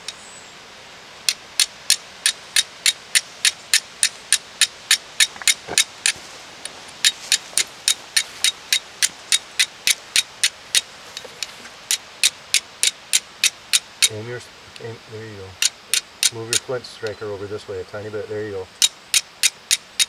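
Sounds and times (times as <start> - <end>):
fire striker striking flint: 1.2 - 14.2, 15.6 - 16.8, 18.8 - 20.0.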